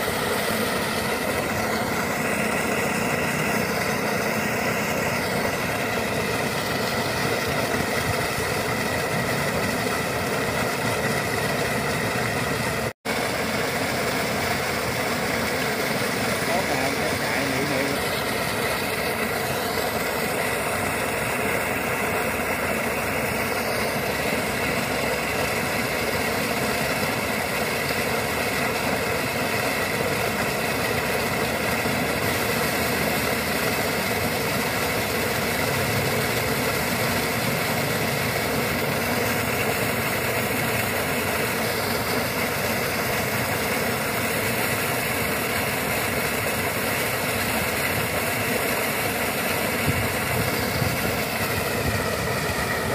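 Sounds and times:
slurry gushing and splashing: 0:00.0 - 0:52.9.

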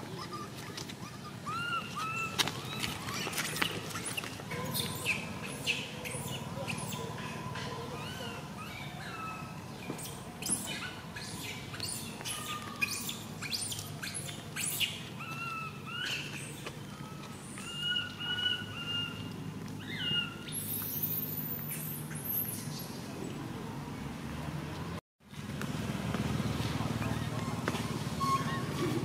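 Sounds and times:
baby monkey crying squeals: 0:00.1 - 0:09.5, 0:10.4 - 0:16.6, 0:17.4 - 0:19.2, 0:19.8 - 0:22.4
sharp monkey chirps: 0:00.2 - 0:07.2, 0:10.4 - 0:16.6.

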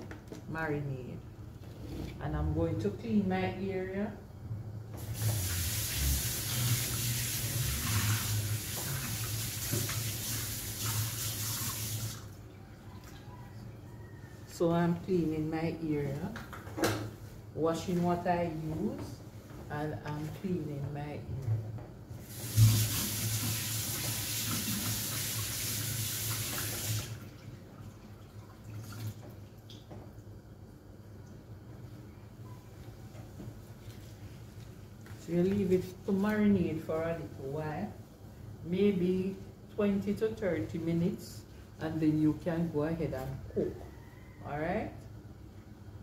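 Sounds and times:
tap water running: 0:04.9 - 0:12.4, 0:22.2 - 0:30.1.

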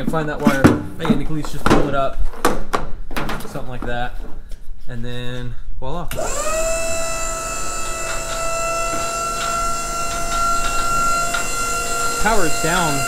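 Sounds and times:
hydraulic pump whine: 0:06.1 - 0:13.0.

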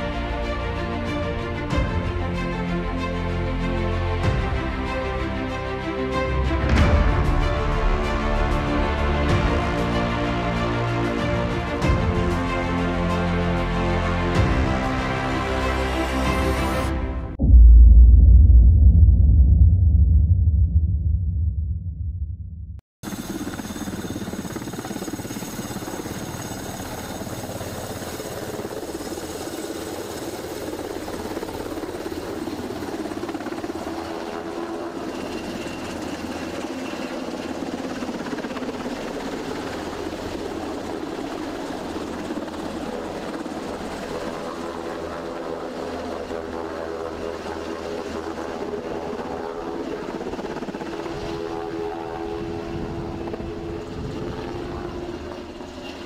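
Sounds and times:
helicopters flying: 0:00.0 - 0:16.9, 0:23.0 - 0:56.0.

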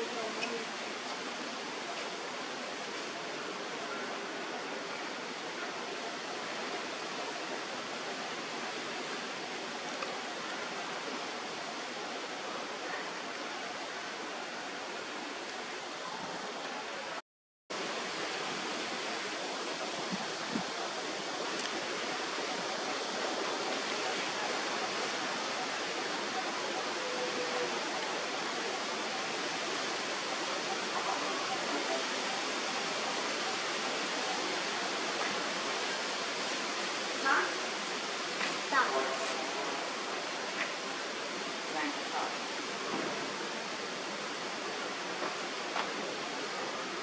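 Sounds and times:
steady hiss: 0:00.0 - 0:47.0.

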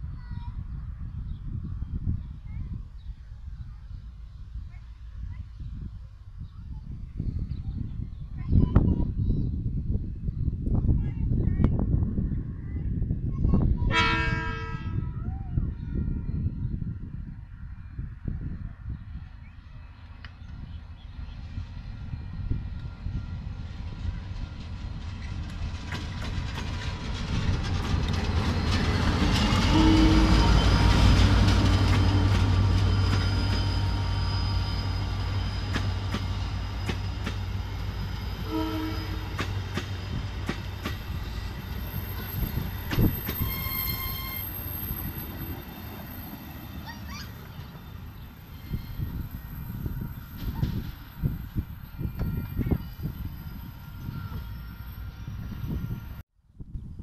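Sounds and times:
short train horn: 0:13.9 - 0:15.2, 0:29.4 - 0:31.2, 0:38.2 - 0:39.5, 0:43.2 - 0:44.7
locomotive engine hum: 0:19.1 - 0:56.2
wheels squealing: 0:26.0 - 0:56.0.

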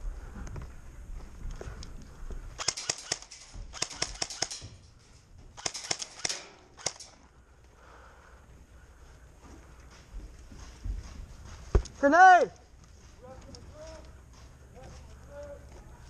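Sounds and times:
airsoft guns firing bursts: 0:02.6 - 0:04.7, 0:05.6 - 0:07.2.

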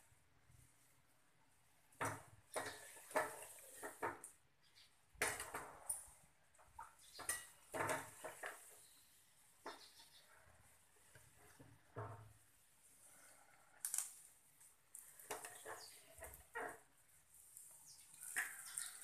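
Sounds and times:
skimmer scraping frying pan: 0:02.0 - 0:04.2, 0:07.1 - 0:09.8.

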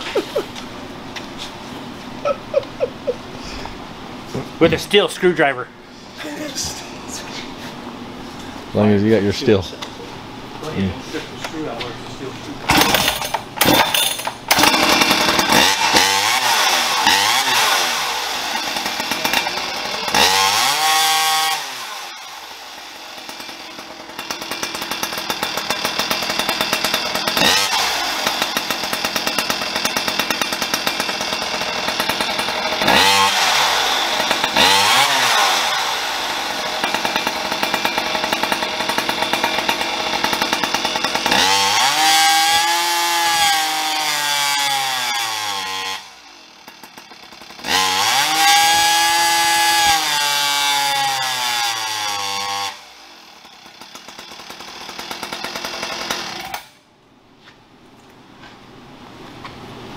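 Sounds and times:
two-stroke chainsaw engine revving: 0:12.7 - 0:56.8.

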